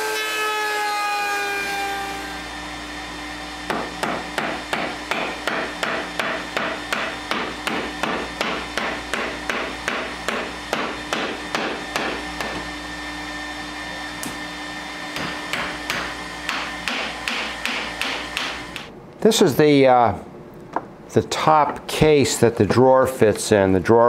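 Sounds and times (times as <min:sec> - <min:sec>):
hammer tapping on wood: 0:03.7 - 0:12.6.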